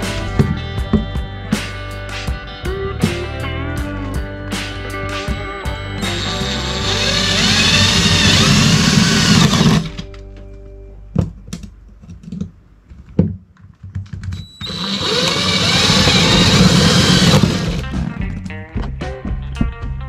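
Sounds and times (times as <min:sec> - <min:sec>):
cordless drill boring: 0:06.0 - 0:10.0, 0:14.4 - 0:17.8.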